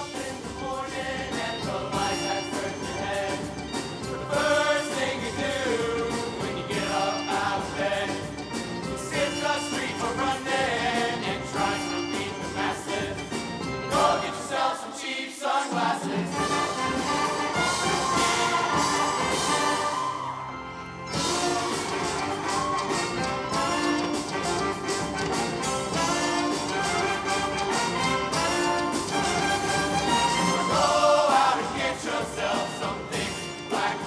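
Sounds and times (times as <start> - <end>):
male choir singing: 0.0 - 8.4, 9.0 - 20.2, 30.0 - 34.0
instrumental backing: 16.3 - 33.9.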